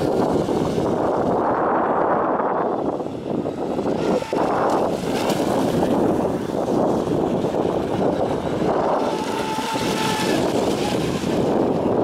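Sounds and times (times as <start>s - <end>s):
electric motor whine: 0.0s - 12.0s
wind buffeting microphone: 0.0s - 12.0s.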